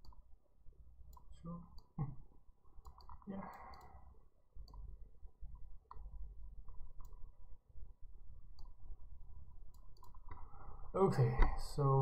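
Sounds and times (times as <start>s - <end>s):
computer mouse clicks: 0.0s - 0.3s, 1.1s - 2.0s, 2.8s - 4.0s, 4.6s - 4.9s, 5.6s - 7.3s, 8.5s - 8.8s, 9.7s - 10.4s.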